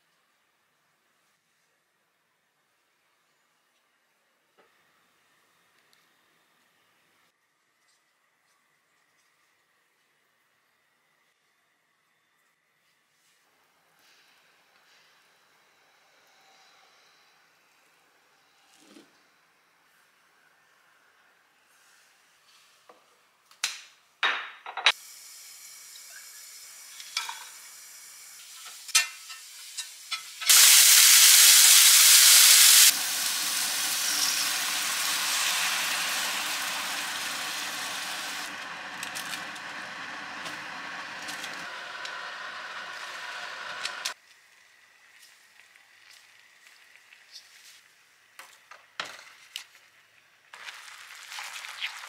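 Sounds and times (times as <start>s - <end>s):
frying pan sizzling: 24.9s - 47.2s, 50.5s - 52.0s
loud hiss of food hitting pan: 27.0s - 44.2s
milk bubbling in pan: 32.9s - 48.5s, 49.4s - 52.0s.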